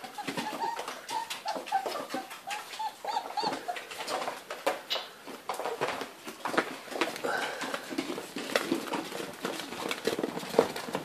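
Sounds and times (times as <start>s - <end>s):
puppies whimpering and squeaking: 0.0s - 5.0s.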